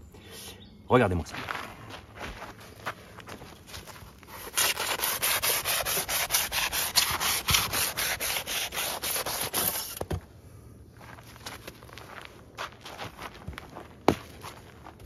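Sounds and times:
saw blade rasping through insulation: 0:04.3 - 0:10.0.

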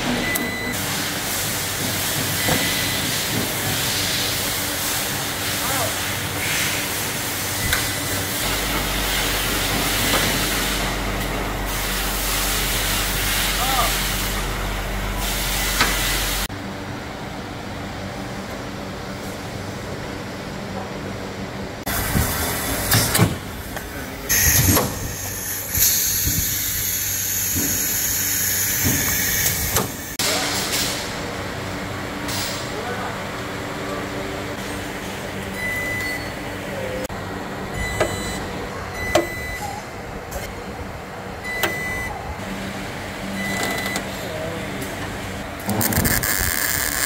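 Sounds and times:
low machine hum: 0:04.5 - 0:25.7.

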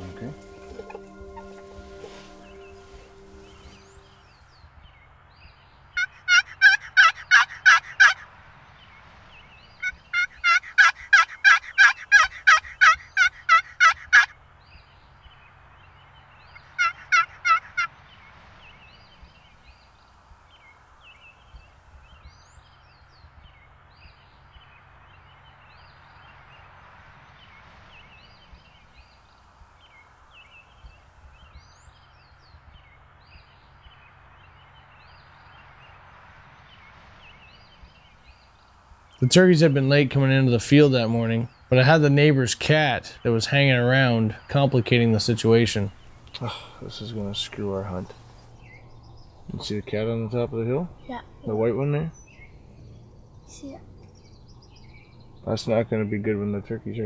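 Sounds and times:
small birds chirping: 0:00.0 - 0:08.1, 0:08.7 - 0:57.0
turkey yelps: 0:06.0 - 0:08.2, 0:09.8 - 0:14.3, 0:16.8 - 0:17.9.

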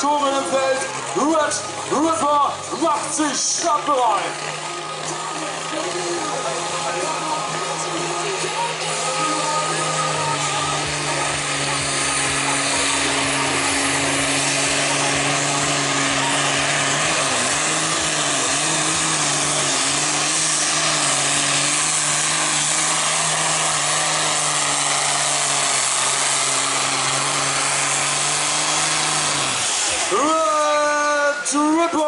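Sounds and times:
diesel tractor engine under load: 0:00.0 - 0:32.0.

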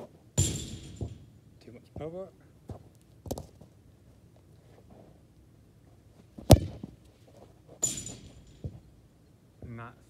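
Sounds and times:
sharp impact with high ring: 0:00.4 - 0:01.3, 0:07.8 - 0:08.8
footsteps on artificial turf: 0:01.8 - 0:03.8
football kicked hard: 0:06.4 - 0:07.0.

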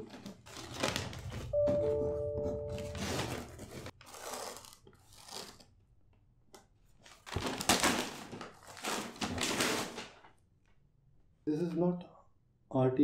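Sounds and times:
wrapping paper tearing: 0:00.0 - 0:01.4, 0:03.0 - 0:05.7, 0:07.1 - 0:10.2
paper crinkling: 0:00.0 - 0:01.5.

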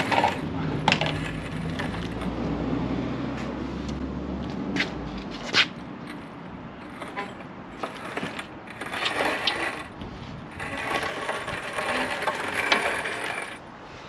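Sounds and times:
dolly casters rolling and rattling: 0:00.0 - 0:02.4, 0:06.0 - 0:13.6.

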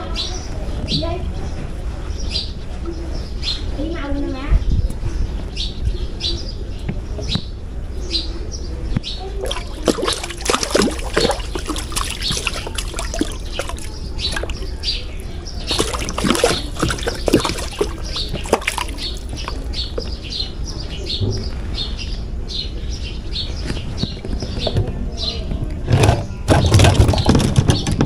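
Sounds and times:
fish splashing in water: 0:09.4 - 0:20.2, 0:26.5 - 0:27.6.

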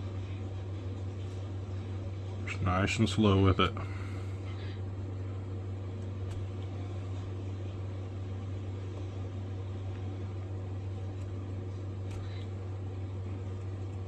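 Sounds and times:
low mechanical hum: 0:00.0 - 0:14.0
knife shaving wood: 0:08.9 - 0:14.0.

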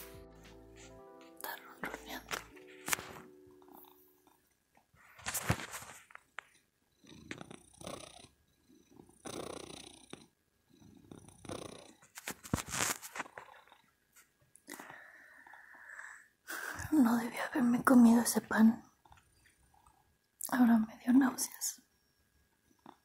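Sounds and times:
cat purring: 0:01.6 - 0:05.3, 0:06.4 - 0:14.1.

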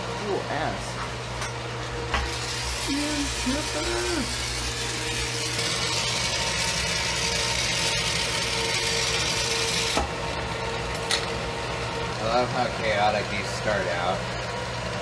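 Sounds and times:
torch flame hissing: 0:02.1 - 0:11.0.

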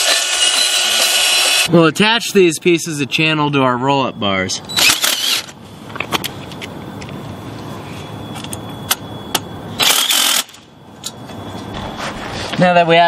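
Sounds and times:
cordless drill driving screws: 0:00.0 - 0:01.7, 0:04.8 - 0:05.5
drill clicks: 0:00.0 - 0:01.7, 0:04.8 - 0:05.5.

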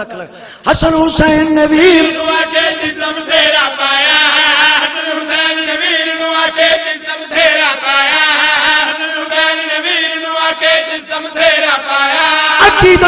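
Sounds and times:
man chanting through a pa system: 0:12.5 - 0:13.0.

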